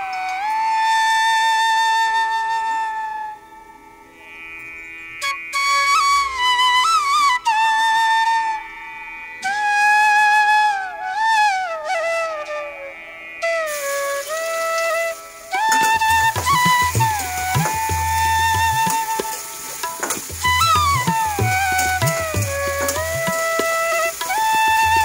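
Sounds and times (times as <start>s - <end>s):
solo melody with pitch bends: 12.2s - 25.0s.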